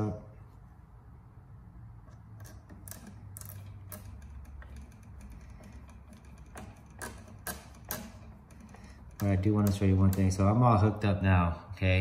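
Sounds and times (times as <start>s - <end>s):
clicks of wires being twisted: 2.0s - 10.8s.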